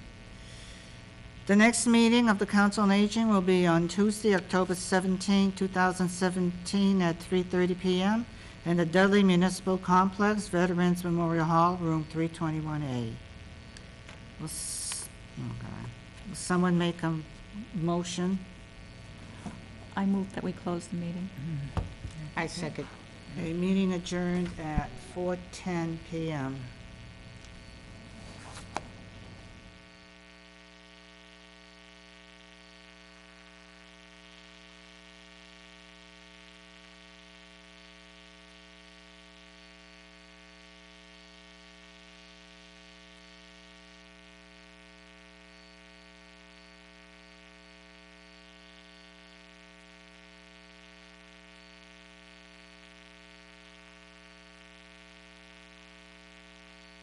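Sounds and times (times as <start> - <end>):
room noise: 0.0 - 34.0
electrical mains hum: 0.0 - 57.0.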